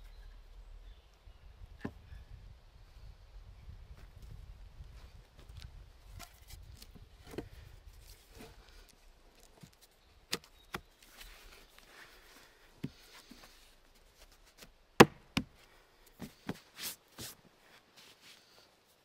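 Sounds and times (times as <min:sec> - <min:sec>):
rustles: 0:03.8 - 0:19.0.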